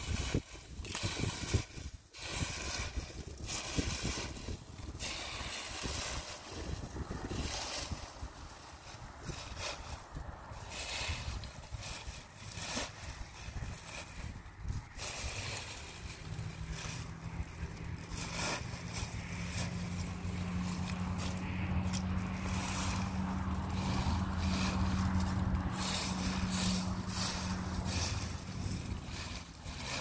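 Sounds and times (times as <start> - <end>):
dry leaves rustling and crunching: 0.0 - 30.0
low motor hum: 4.7 - 30.0.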